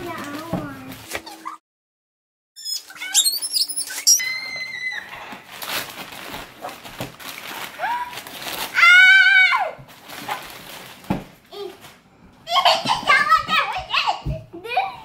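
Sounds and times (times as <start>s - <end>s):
wrapping paper rustling: 0.0s - 1.6s, 4.8s - 12.0s
children squealing excitedly: 2.6s - 5.4s, 7.8s - 9.8s.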